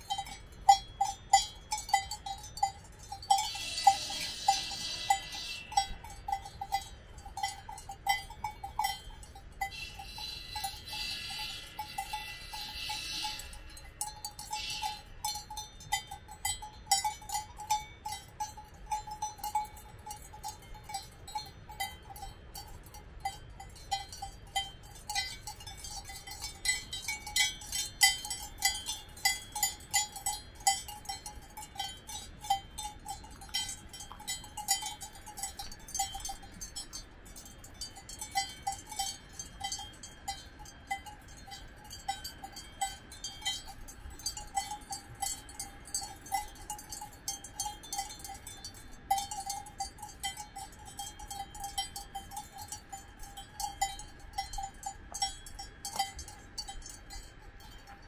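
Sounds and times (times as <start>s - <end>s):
cowbells clanking: 0.0s - 58.0s.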